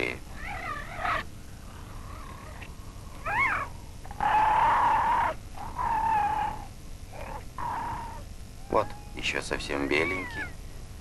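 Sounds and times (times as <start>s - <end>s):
seal crying: 2.0s - 10.6s.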